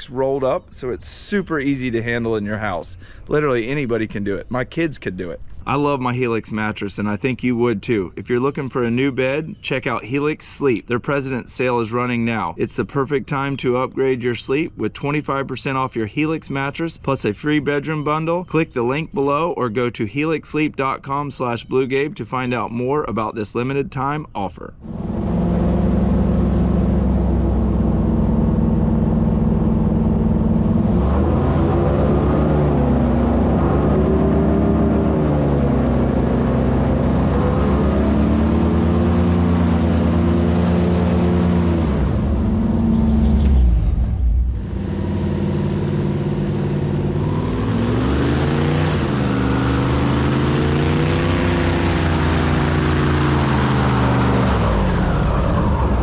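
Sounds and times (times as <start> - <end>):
airboat engine and propeller: 24.8 - 56.0.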